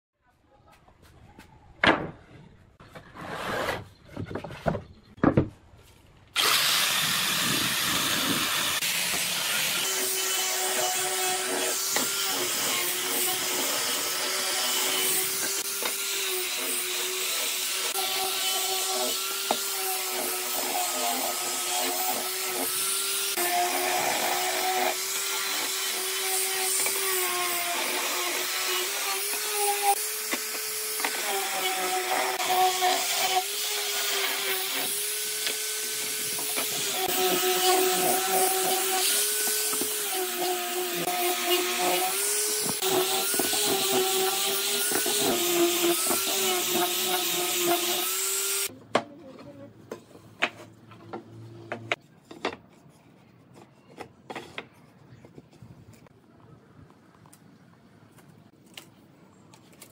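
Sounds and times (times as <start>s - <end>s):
angle grinder sanding wood: 6.4s - 48.7s.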